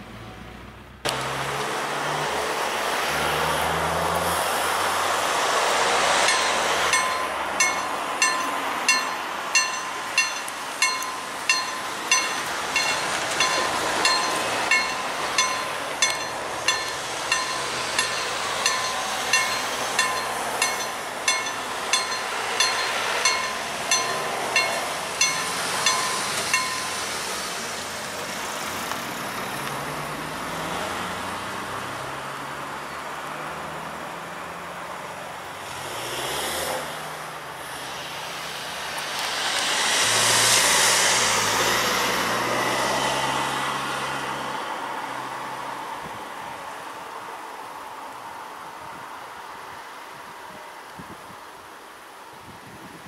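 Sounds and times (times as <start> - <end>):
level crossing warning bell: 5.8 - 27.8.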